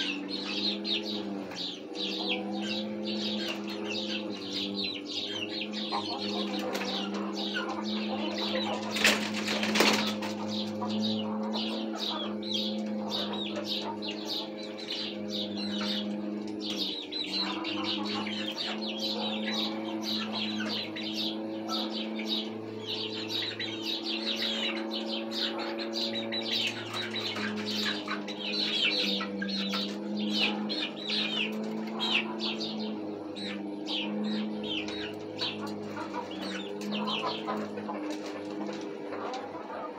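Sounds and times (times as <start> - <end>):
chicks chirping and peeping: 0.0 - 39.9
steady low hum: 0.0 - 39.9
wing flapping: 8.5 - 10.8.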